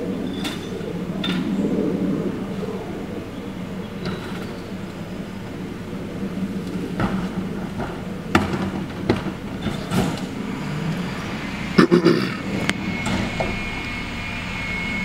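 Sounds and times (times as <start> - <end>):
garbage truck idling: 3.2 - 15.0
trash carts knocking against hopper: 6.9 - 10.5.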